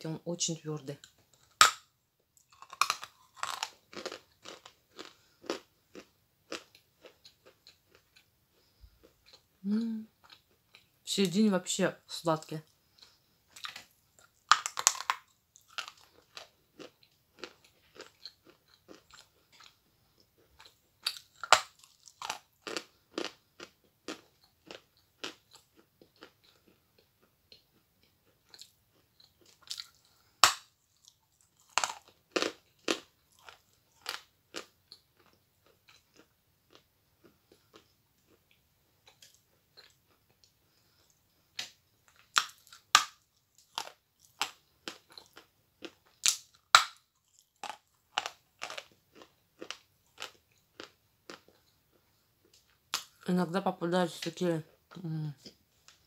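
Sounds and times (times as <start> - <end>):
chalk crunching while chewing: 2.4 - 9.4.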